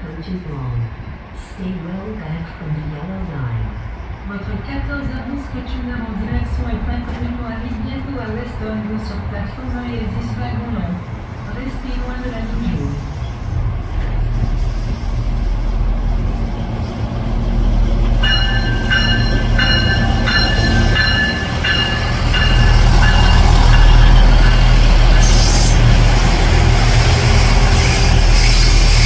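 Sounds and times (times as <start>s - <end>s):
train engine rumble: 0.0s - 29.0s
high wheel squeal: 23.0s - 25.9s.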